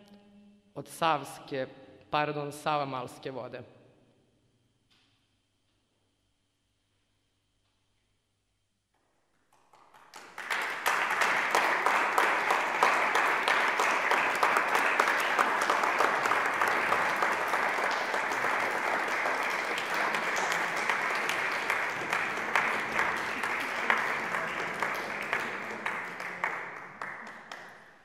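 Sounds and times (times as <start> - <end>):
audience applauding: 9.5 - 28.0.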